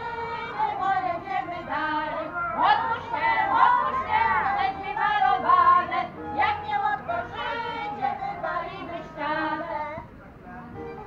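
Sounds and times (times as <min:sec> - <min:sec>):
women singing together: 0:00.0 - 0:10.1.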